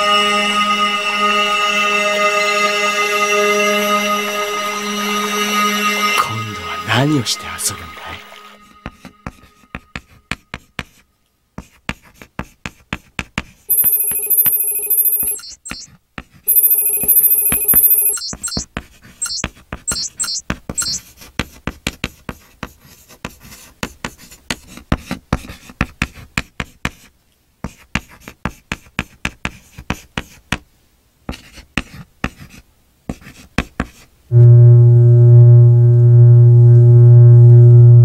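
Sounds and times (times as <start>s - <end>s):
electronic device ringing: 13.7s - 15.9s, 16.5s - 18.6s, 19.2s - 21.0s
short warbling chirps: 13.7s - 15.9s, 16.5s - 18.6s, 19.2s - 21.0s
chalk tapping on a blackboard: 21.4s - 30.7s, 31.3s - 34.1s.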